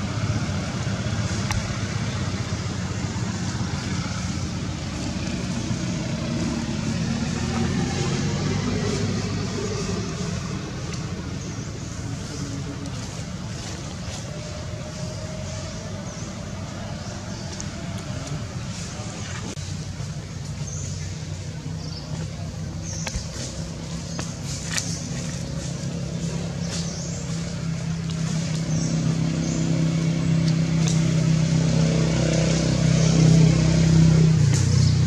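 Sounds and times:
vehicle engine humming: 0.0s - 35.0s.

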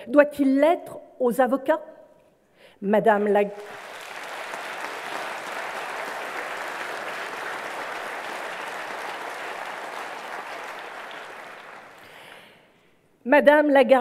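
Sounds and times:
audience applauding: 3.5s - 12.6s.

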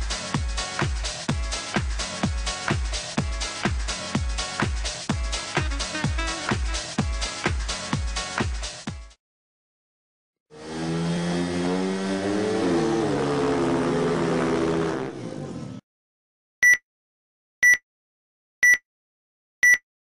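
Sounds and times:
engine-like revving sound effect: 10.5s - 15.8s
short high beeps: 16.6s - 16.8s, 17.6s - 17.8s, 18.6s - 18.8s, 19.6s - 19.8s.

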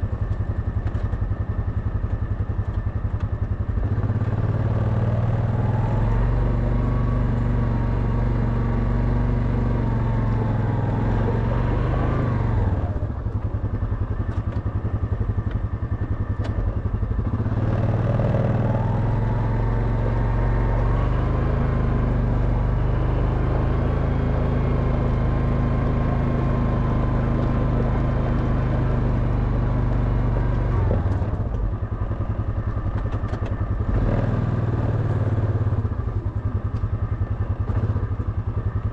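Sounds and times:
quad bike engine revving: 3.8s - 13.3s, 16.2s - 31.7s, 32.6s - 36.0s.

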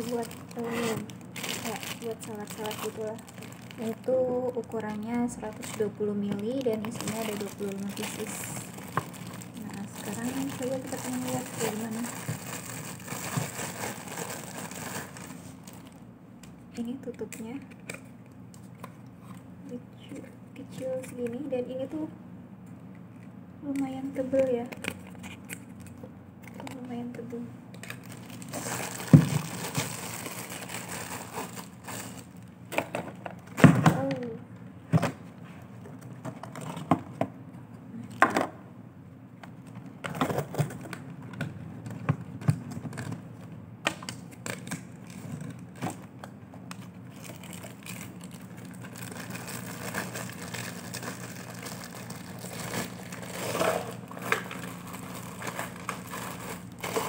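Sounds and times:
plastic bag rustling and crinkling: 0.0s - 16.0s, 27.8s - 32.5s, 46.8s - 57.0s.

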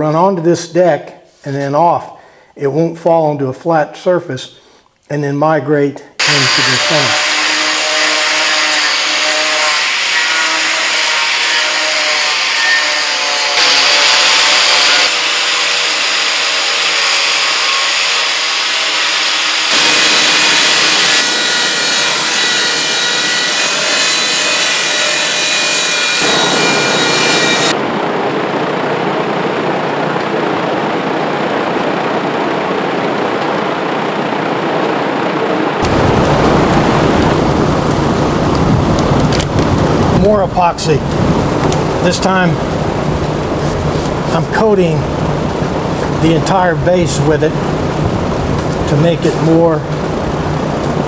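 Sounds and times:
angle grinder grinding wood: 6.2s - 27.8s
power drill sanding wood: 6.2s - 27.8s.

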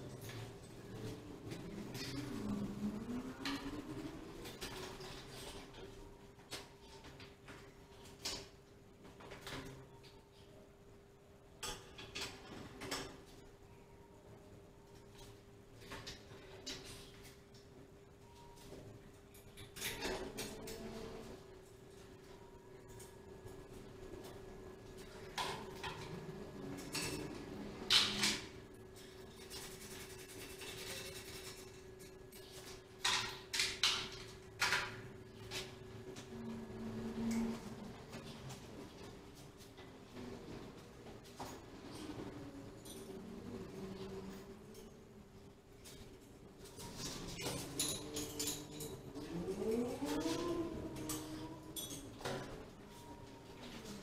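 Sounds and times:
faint steady hum: 0.0s - 54.0s
light metallic clinks and knocks: 45.8s - 53.0s.

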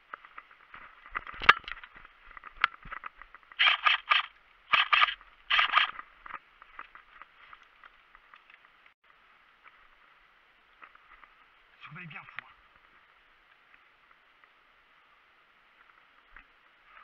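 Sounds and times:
sharp click: 3.6s - 6.0s.

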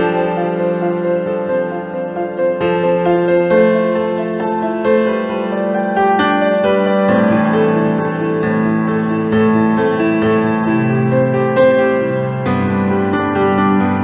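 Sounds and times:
instrumental music: 0.0s - 14.0s.

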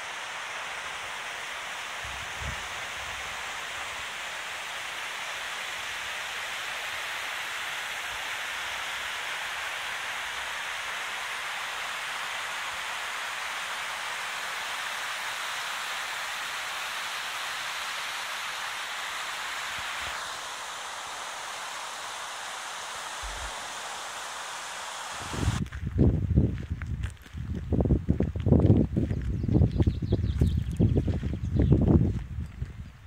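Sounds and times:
stream rushing over stones: 0.0s - 25.6s.

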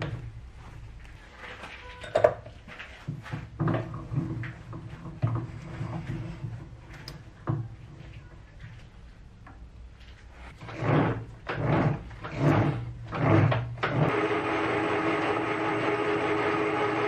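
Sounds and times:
metal tools clunking and clinking: 1.7s - 2.6s.

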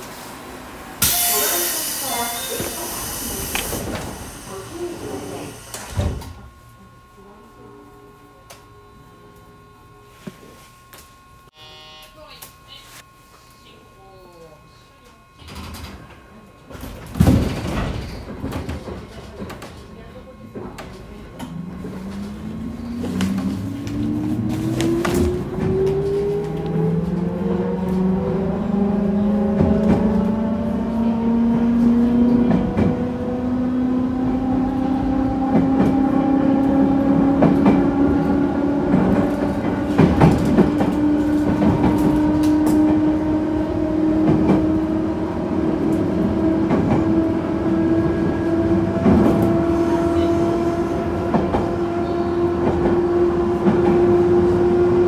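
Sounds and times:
electric train motor whine: 11.2s - 12.4s.

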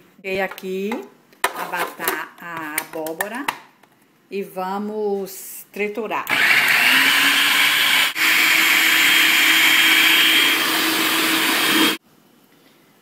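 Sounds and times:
food processor motor running: 6.3s - 12.0s.

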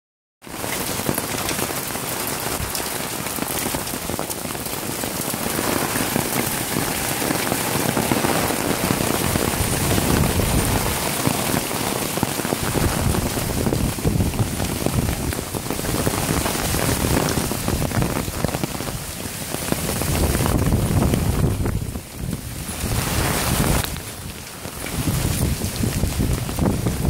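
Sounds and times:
heavy rain pouring: 0.4s - 27.0s.

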